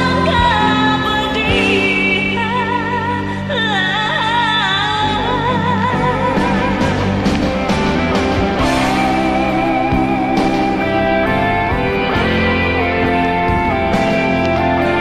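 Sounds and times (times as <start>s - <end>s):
rock ballad backing track: 0.0s - 15.0s.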